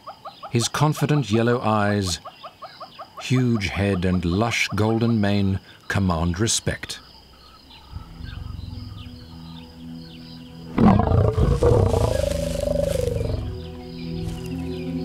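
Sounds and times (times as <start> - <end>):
background music with low notes: 6.8 - 15.0
lion roaring: 10.7 - 13.6.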